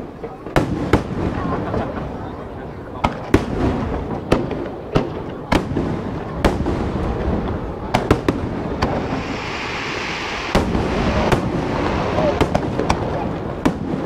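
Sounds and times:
firework bangs: 0.4 - 14.0
firework hiss: 8.0 - 14.0.

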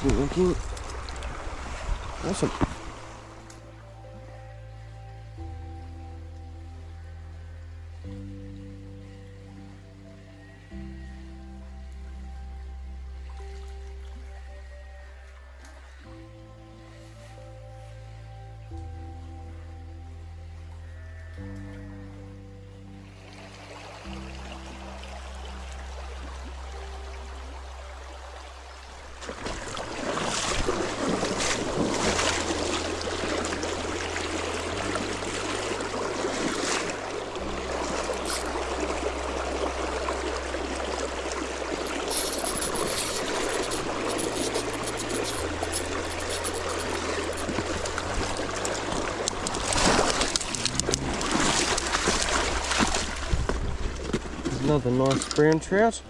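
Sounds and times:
river water rushing: 0.0 - 4.5, 23.0 - 55.9
background music with slow bass: 0.0 - 56.0.

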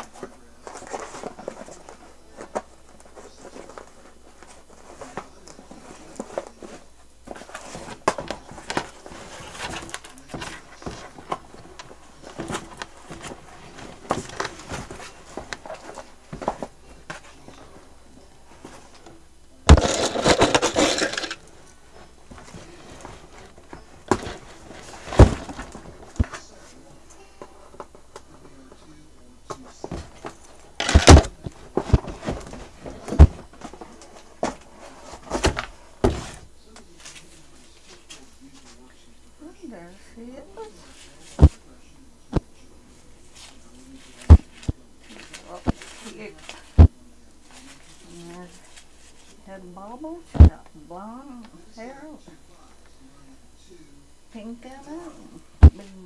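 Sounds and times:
toy packaging rustling and crinkling: 18.6 - 28.6, 29.6 - 36.4.

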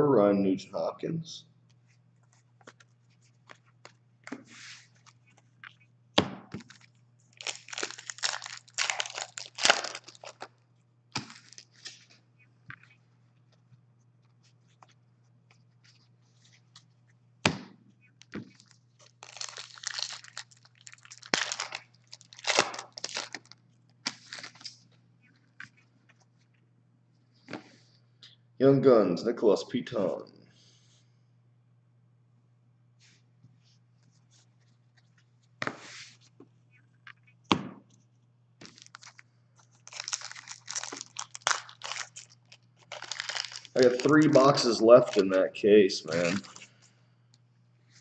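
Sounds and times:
wrappers tearing and rustling: 6.6 - 10.6, 11.2 - 12.2, 18.5 - 24.9, 38.6 - 45.3, 46.1 - 46.7.

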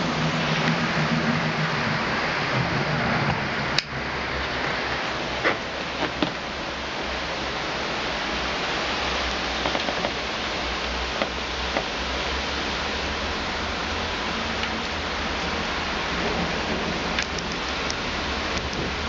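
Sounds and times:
heavy rain hissing: 0.0 - 19.0
hailstones ticking: 9.5 - 12.1, 14.3 - 19.0.

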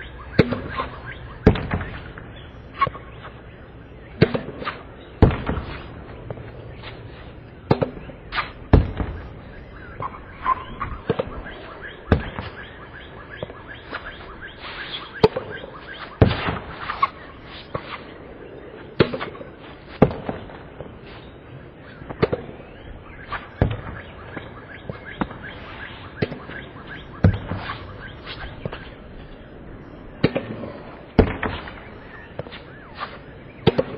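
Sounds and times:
tennis balls struck and bouncing: 0.3 - 2.0, 2.7 - 3.2, 4.2 - 6.8, 7.6 - 9.2, 15.0 - 18.0, 19.0 - 21.0, 26.2 - 28.9, 30.2 - 33.9.

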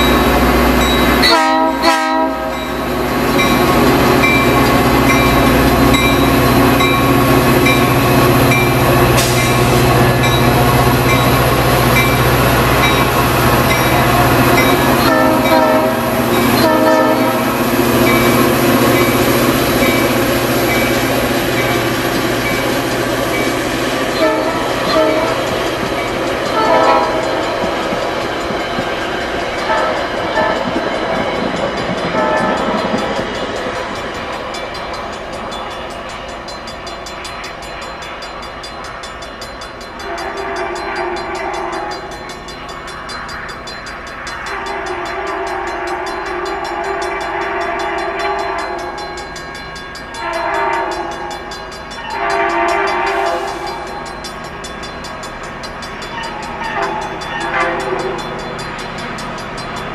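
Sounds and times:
distant train horn: 0.0 - 31.2, 32.0 - 33.0, 40.0 - 42.2, 44.4 - 49.0, 50.1 - 54.1, 56.1 - 58.4
diesel locomotive passing: 0.0 - 59.9
train wheels rolling: 0.0 - 59.9.

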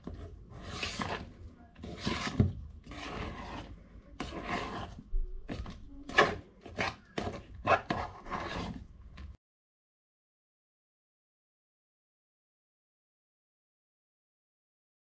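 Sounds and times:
spoon scraping steel bowl: 0.0 - 8.9.

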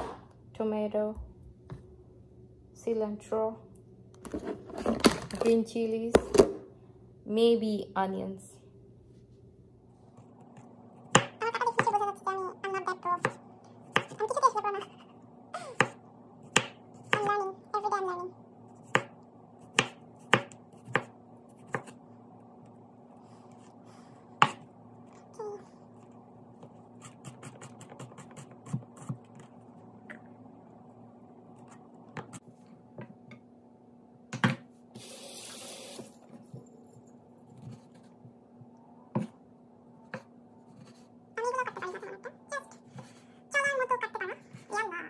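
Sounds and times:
faint steady hum: 0.0 - 45.0
knife chopping on wooden board: 18.9 - 19.1, 19.7 - 22.0.

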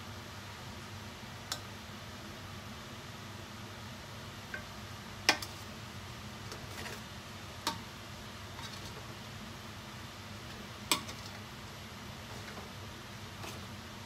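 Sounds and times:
utensil clinking against steel pot: 10.9 - 11.4.

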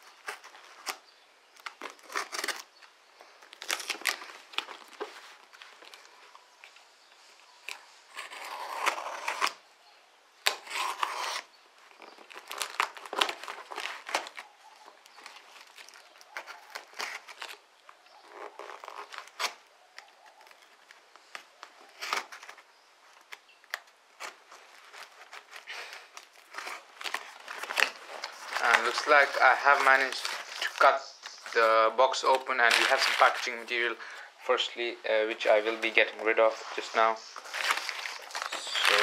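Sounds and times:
tape and paper rustling: 0.0 - 9.6, 10.4 - 39.0
blade slitting tape and cardboard: 1.6 - 2.8, 7.7 - 9.6, 10.4 - 14.5.

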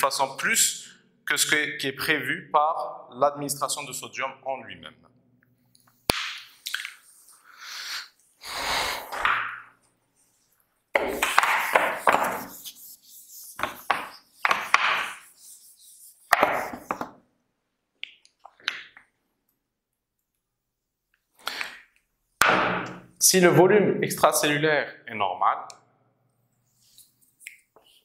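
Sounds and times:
eraser wiping whiteboard: 11.0 - 17.1.

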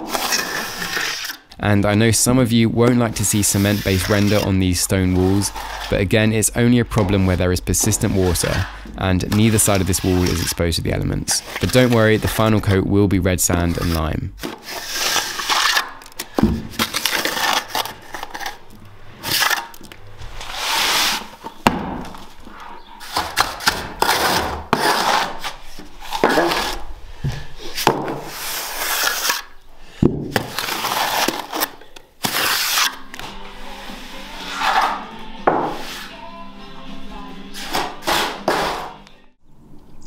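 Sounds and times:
trowel scraping cement render: 0.0 - 1.5, 2.9 - 12.8, 13.4 - 18.6, 19.2 - 19.8, 20.4 - 26.9, 27.6 - 29.6, 30.3 - 35.1, 37.6 - 39.0.

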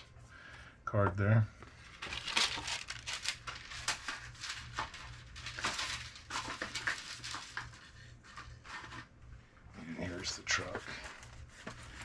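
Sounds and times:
paper rustling and crinkling: 1.7 - 9.2, 10.0 - 12.0.

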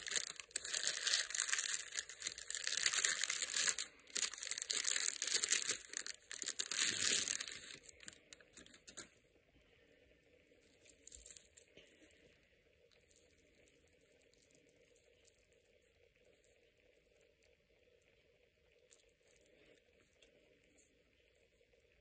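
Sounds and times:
plastic wrapping crinkling: 0.0 - 9.1.

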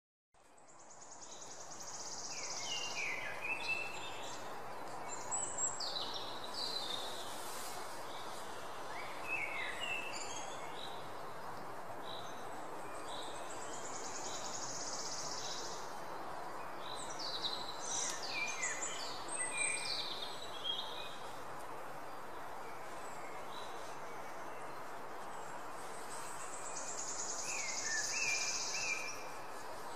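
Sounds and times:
birds chirping and trilling: 0.4 - 21.5
steady background hiss: 0.4 - 29.9.

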